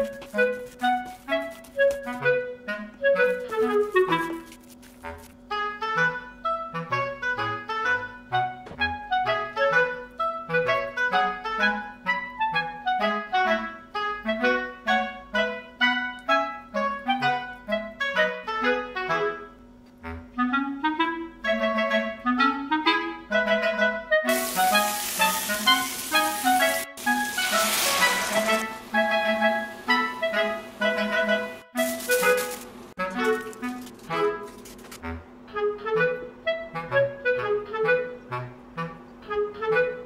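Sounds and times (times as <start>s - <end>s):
bouncy woodwind melody with bass: 0.0s - 40.0s
steady hiss: 24.3s - 30.9s.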